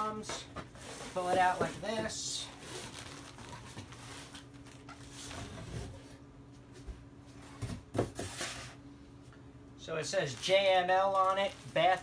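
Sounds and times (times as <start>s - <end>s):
steady low hum: 0.0s - 12.0s
plastic wrap rustling: 0.8s - 5.8s, 10.1s - 12.0s.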